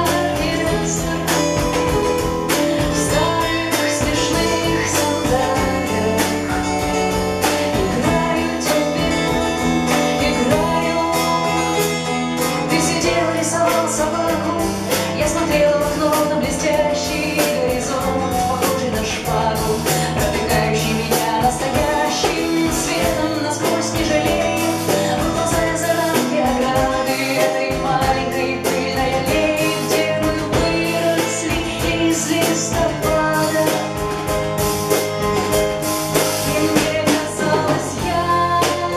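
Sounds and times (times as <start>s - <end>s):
woman singing: 0.0s - 34.8s, 36.1s - 38.9s
live band playing: 0.0s - 38.9s.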